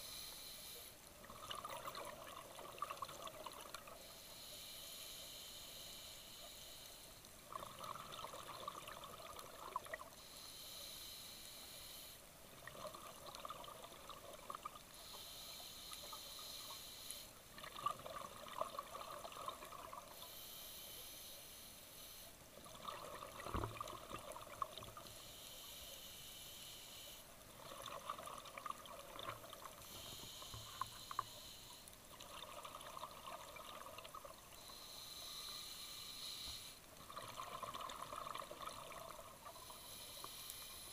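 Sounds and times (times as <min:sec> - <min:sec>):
hissing regulator inhale: 0:00.0 - 0:01.0, 0:03.9 - 0:07.2, 0:10.1 - 0:12.3, 0:14.9 - 0:17.4, 0:20.0 - 0:22.4, 0:24.9 - 0:27.3, 0:29.7 - 0:32.0, 0:34.5 - 0:36.9, 0:39.4 - 0:40.9
gurgling exhaled bubbles: 0:01.3 - 0:03.9, 0:07.5 - 0:10.1, 0:17.6 - 0:20.1, 0:22.6 - 0:25.0, 0:27.6 - 0:29.8, 0:32.1 - 0:34.4, 0:37.0 - 0:39.3.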